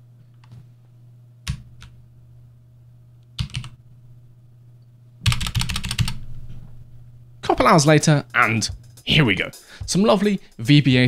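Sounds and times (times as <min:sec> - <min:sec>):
low hum: 0:00.0 - 0:10.7
computer keyboard typing: 0:03.4 - 0:03.8, 0:05.2 - 0:06.2.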